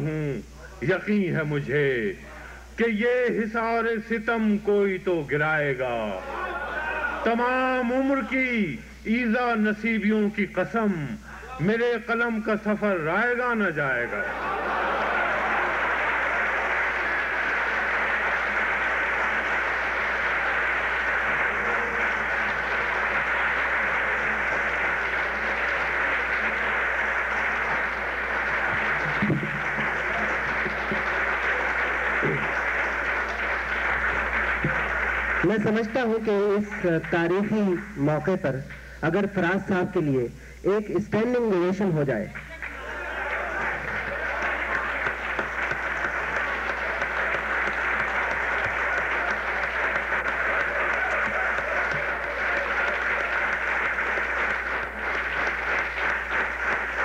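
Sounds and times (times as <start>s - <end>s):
audience applauding: 13.8s - 38.3s, 42.3s - 57.0s.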